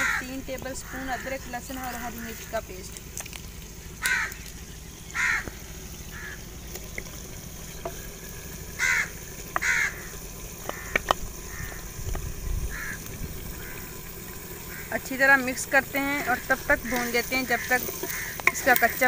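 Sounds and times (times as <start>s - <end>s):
crow cawing: 0.0s - 1.5s, 4.0s - 4.5s, 5.1s - 6.4s, 8.8s - 11.9s, 12.7s - 14.0s, 14.7s - 15.0s, 16.8s - 18.8s
wooden spoon knocking on pot: 17.0s - 18.9s.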